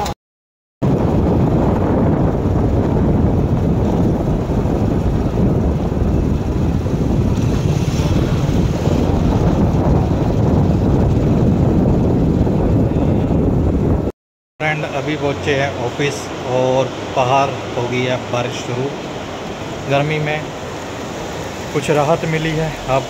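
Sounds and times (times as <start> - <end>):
wind buffeting microphone: 0.8 - 14.1.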